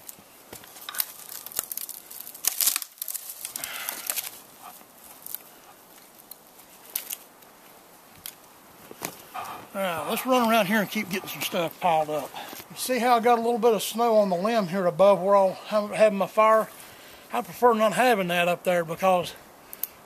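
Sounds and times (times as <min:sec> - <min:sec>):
twigs snapping and cracking: 0:00.0 - 0:09.3, 0:19.7 - 0:20.0
sticks rustling together: 0:00.0 - 0:12.8.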